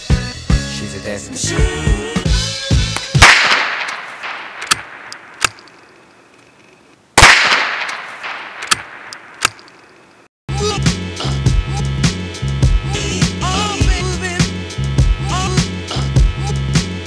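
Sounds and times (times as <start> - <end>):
sharp metallic clicks: 3.0 - 10.3
rifle shots echoing: 3.1 - 6.2, 7.2 - 10.0.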